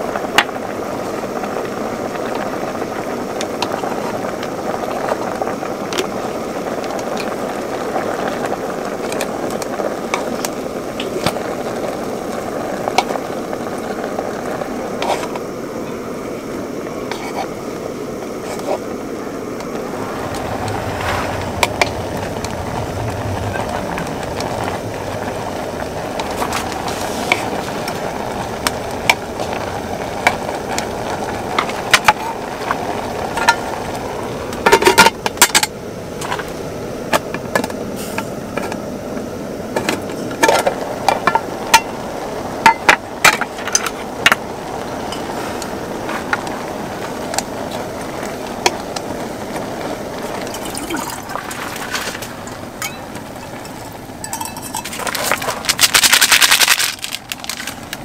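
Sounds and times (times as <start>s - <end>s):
steady hiss: 0.0s - 58.0s
water pouring into pot: 43.5s - 58.0s
chopsticks clinking on metal tin: 53.7s - 55.2s.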